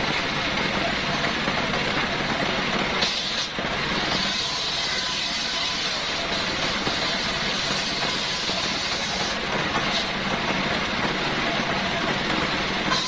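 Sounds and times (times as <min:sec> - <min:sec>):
stationary engine running: 0:00.0 - 0:13.0
circular saw cutting wood: 0:03.0 - 0:10.3, 0:12.8 - 0:13.0.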